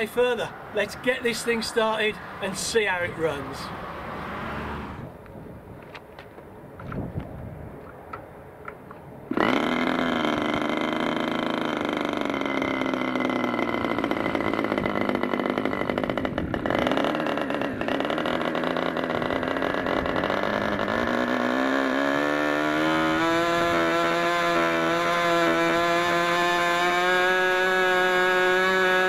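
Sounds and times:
electric starter: 9.3 - 29.0
model engine running: 9.3 - 29.0.

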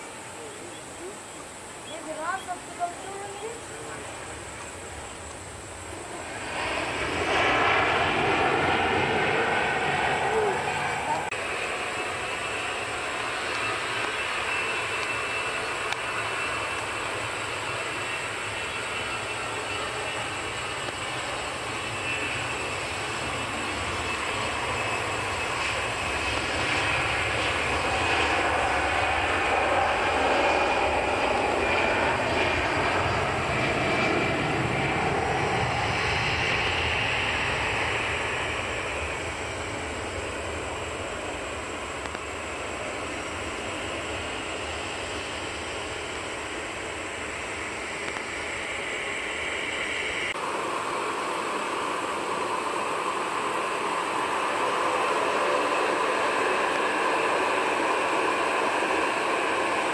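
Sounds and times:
jet engines roaring with fan whine: 0.0 - 59.9.

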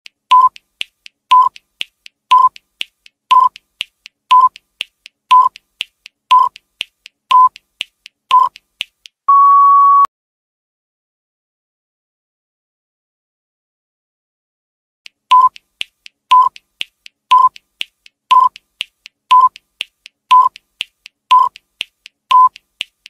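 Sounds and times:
faint ticks: 0.3 - 9.2, 15.1 - 23.0
long steady beep: 9.3 - 10.1, 22.3 - 22.5
short beeps: 9.3 - 10.1, 15.3 - 15.6, 21.3 - 21.5, 22.3 - 22.6.

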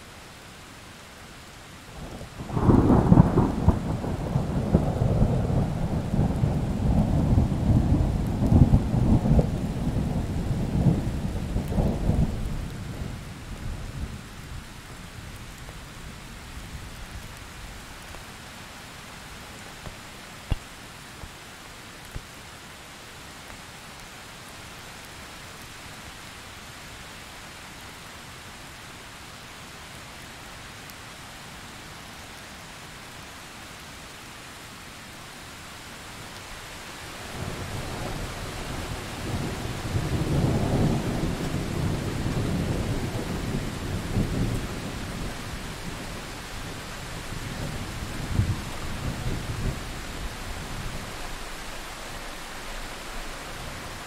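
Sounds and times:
steady rain: 0.0 - 54.0
thunder rumbling: 2.2 - 13.2.

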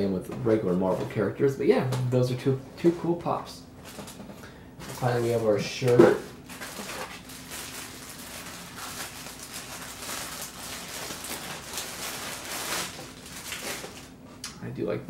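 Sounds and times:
plastic bag crinkling: 4.8 - 14.2.

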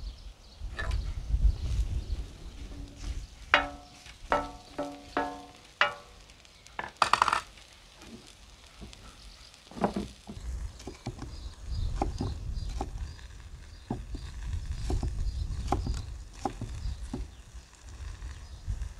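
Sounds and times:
spoon scraping pan: 2.7 - 6.1
wooden spoon clanking on pan: 3.6 - 6.2.

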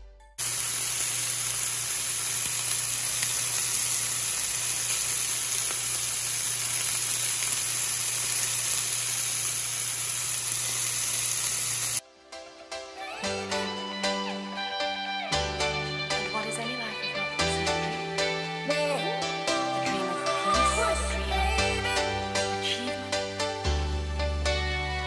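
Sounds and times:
chicken wings sizzling in pan: 0.4 - 12.0.

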